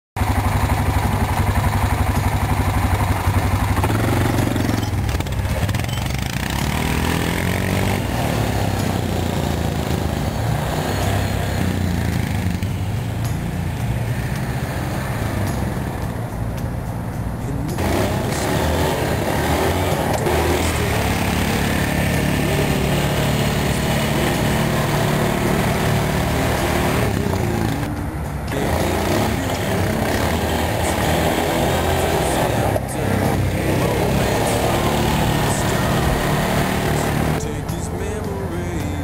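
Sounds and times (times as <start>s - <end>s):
atv engine running: 0.2s - 39.0s.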